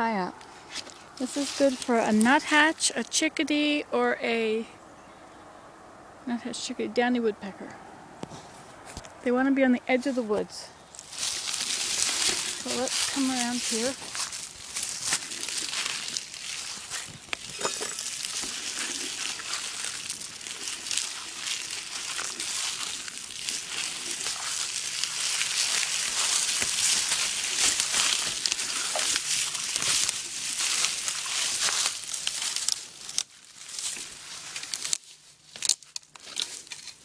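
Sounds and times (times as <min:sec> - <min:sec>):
footsteps crunching through leaves: 0:00.6 - 0:02.4, 0:10.8 - 0:37.0.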